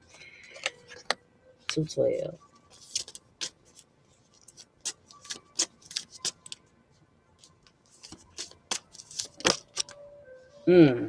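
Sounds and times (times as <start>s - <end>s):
cards being shuffled: 0.1s - 1.2s, 2.7s - 6.6s, 7.4s - 10.0s.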